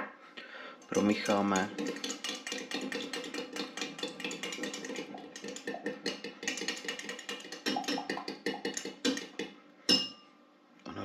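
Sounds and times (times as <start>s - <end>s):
utensil stirring and scraping container: 0.8s - 9.5s.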